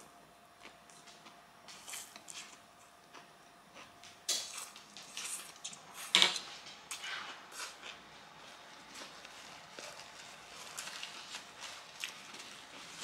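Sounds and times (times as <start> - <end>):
noodles being slurped and chewed: 6.9 - 13.0.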